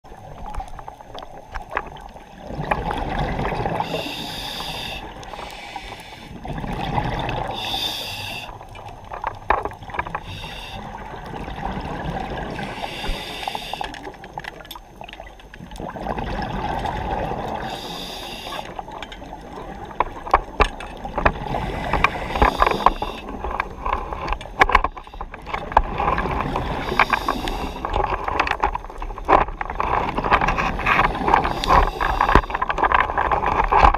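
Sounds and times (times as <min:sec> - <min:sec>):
underwater rumble: 0:00.0 - 0:33.9
diver breathing through regulator: 0:03.8 - 0:06.6, 0:07.4 - 0:08.6, 0:10.2 - 0:11.1, 0:12.5 - 0:14.1, 0:17.6 - 0:18.8, 0:21.4 - 0:23.5, 0:26.2 - 0:28.0, 0:30.7 - 0:32.8.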